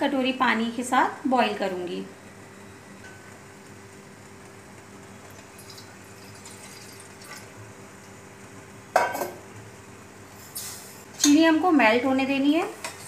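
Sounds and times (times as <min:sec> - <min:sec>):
water pouring into a pot: 0:05.4 - 0:07.6.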